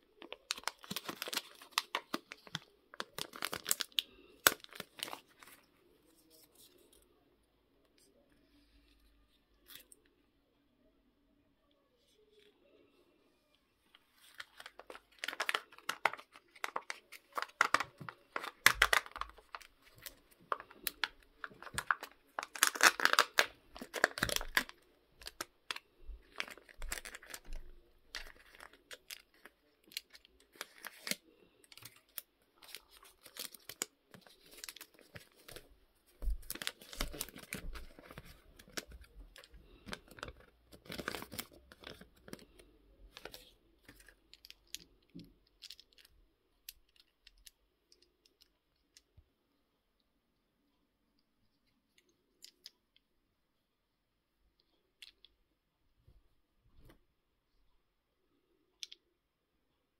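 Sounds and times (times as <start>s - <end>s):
plastic wrapper crinkling and tearing: 0.0s - 7.0s, 13.9s - 47.6s
paper leaflet rustling: 14.0s - 42.5s.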